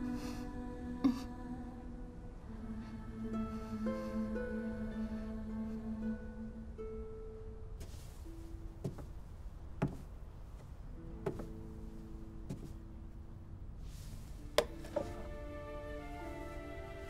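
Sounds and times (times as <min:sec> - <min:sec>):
soft background music: 0:00.0 - 0:17.0
footsteps on wooden floor: 0:07.8 - 0:12.9, 0:14.2 - 0:15.2.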